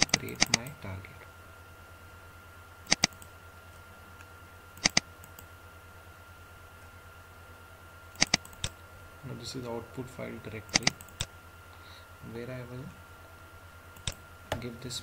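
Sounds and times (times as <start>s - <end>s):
computer mouse clicking: 0.0s - 0.7s, 2.9s - 3.3s, 4.8s - 5.5s, 8.2s - 8.8s, 10.7s - 11.3s, 14.0s - 14.2s
faint electrical hum: 0.0s - 15.0s.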